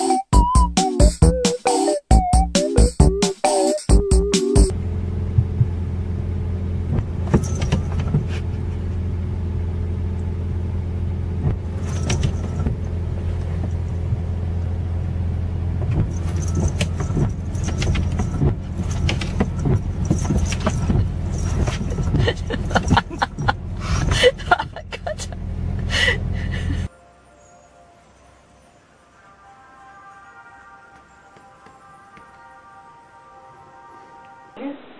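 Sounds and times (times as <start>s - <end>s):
car engine idling: 4.7s - 26.9s
windshield wipers sweeping: 4.8s - 25.4s.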